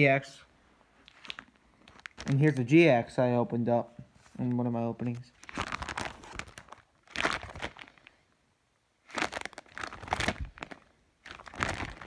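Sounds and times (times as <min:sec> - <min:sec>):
plastic sleeves crinkling: 0:00.9 - 0:02.9, 0:04.2 - 0:08.2, 0:09.0 - 0:12.0.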